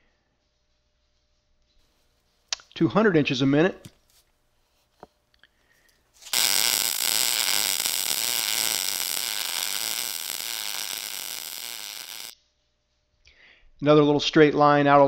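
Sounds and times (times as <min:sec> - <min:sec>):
welding arc crackling: 0:06.2 - 0:12.4.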